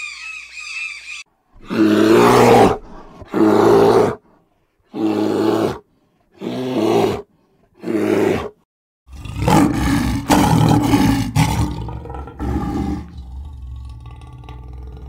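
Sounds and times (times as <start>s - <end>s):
bird squawking: 0.0s - 1.3s
large animal roaring: 1.6s - 4.2s, 9.1s - 15.0s.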